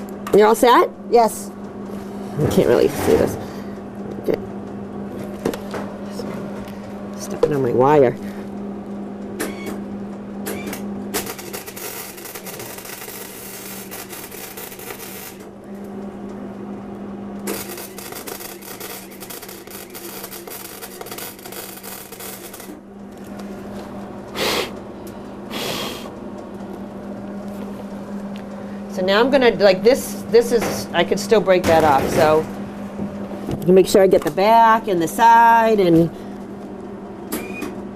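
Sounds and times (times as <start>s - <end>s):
steady low hum: 0.0s - 37.9s
welder arc crackling: 11.1s - 15.5s, 17.4s - 23.4s.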